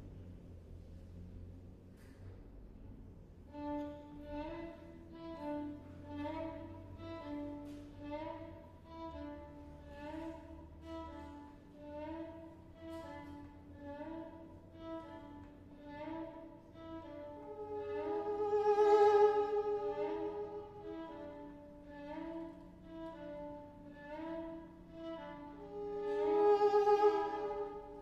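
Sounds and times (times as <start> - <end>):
violin duo playing: 3.6 - 28.0.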